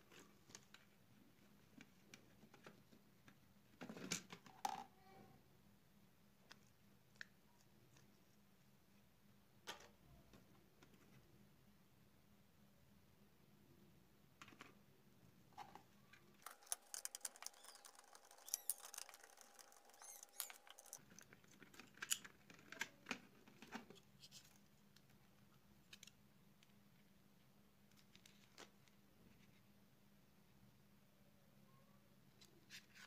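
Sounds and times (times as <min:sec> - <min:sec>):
hands handling plastic parts: 0:15.5 - 0:26.8.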